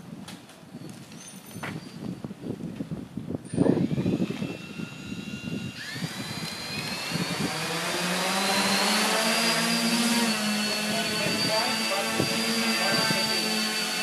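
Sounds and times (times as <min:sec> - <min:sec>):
drone motors whirring and whining: 0:03.4 - 0:14.0.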